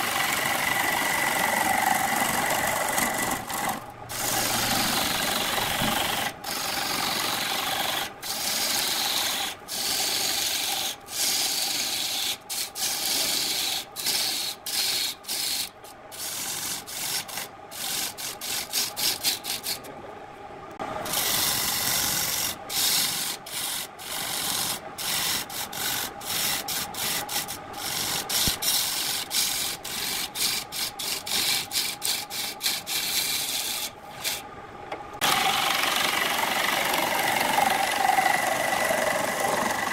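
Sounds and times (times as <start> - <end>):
lathe motor hum: 0.0 - 13.8, 35.2 - 39.9
lathe tool scraping wood: 0.0 - 19.9, 21.0 - 34.5, 35.2 - 39.9.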